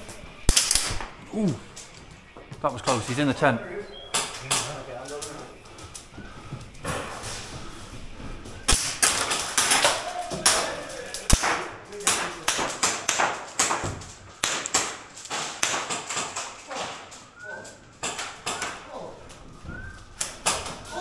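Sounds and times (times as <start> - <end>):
airsoft guns firing: 0.0 - 3.2, 4.1 - 5.9, 8.6 - 19.1, 19.8 - 21.0
pellets smacking plywood walls: 0.0 - 21.0.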